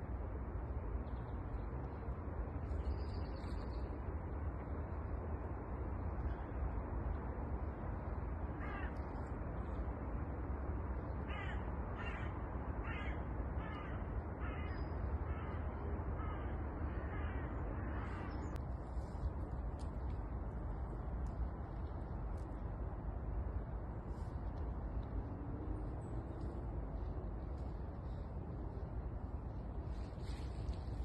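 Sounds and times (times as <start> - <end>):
crow cawing: 8.6 - 9.0, 11.3 - 15.6, 16.2 - 18.3.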